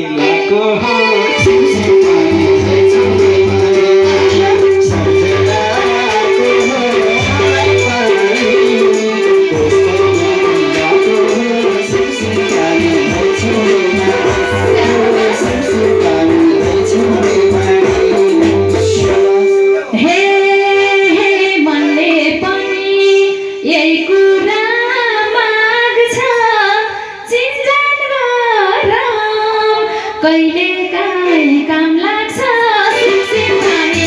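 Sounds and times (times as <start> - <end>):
live band accompaniment: 0.0 - 27.9, 28.6 - 34.0
woman singing into a microphone: 0.0 - 34.0
held instrumental note: 0.2 - 20.2.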